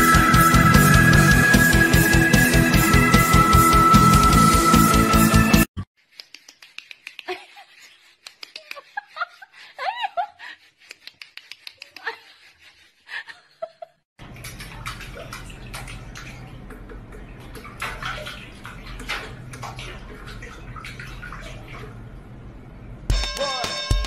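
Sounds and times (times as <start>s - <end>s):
water splashing in a steel sink: 14.2s - 22.4s.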